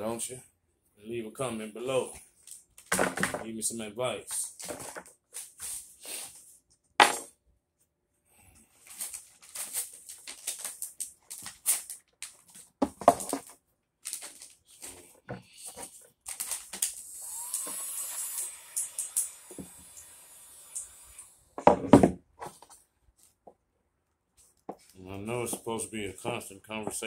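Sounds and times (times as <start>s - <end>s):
vinyl film crinkling: 8.8s - 15.0s, 15.8s - 17.0s
heat gun hissing and whining: 16.9s - 21.5s.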